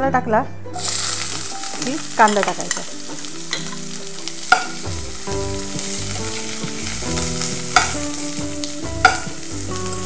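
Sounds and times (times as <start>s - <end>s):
onions sizzling in hot oil: 0.8s - 10.0s
spoon clinking against pan: 1.7s - 4.8s, 7.5s - 8.3s, 9.0s - 9.4s.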